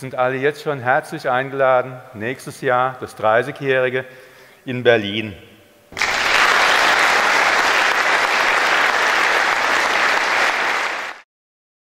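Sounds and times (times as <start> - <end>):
audience applauding: 6.0 - 11.2.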